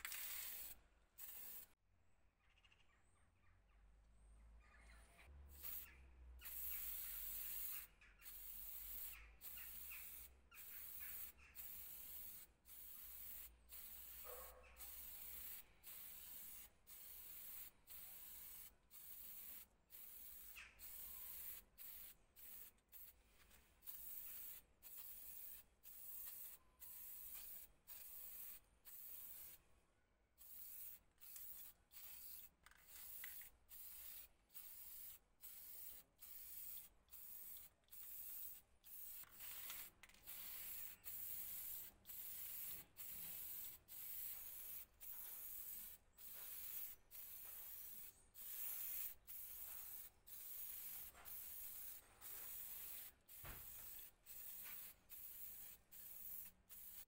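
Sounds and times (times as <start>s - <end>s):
spray paint can hissing: 0.0s - 1.8s, 5.5s - 29.6s, 30.4s - 57.0s.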